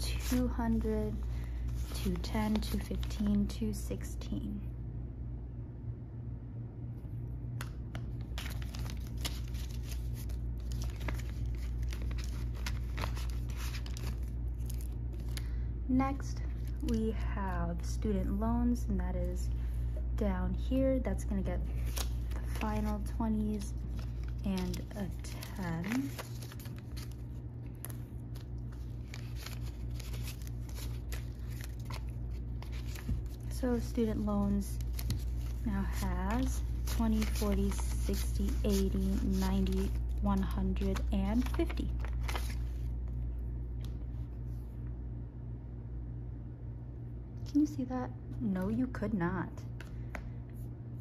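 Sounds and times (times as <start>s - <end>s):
paper banknotes rustling: 0.0s - 3.5s, 7.6s - 15.6s, 21.6s - 42.9s
steady low hum: 0.0s - 51.0s
plastic pouch crinkling: 7.9s - 15.6s, 21.8s - 40.2s, 40.9s - 42.9s.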